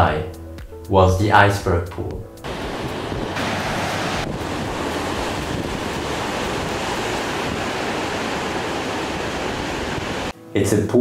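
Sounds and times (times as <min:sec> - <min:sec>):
ocean surf breaking: 0:02.4 - 0:10.3
wind on microphone: 0:02.4 - 0:10.3.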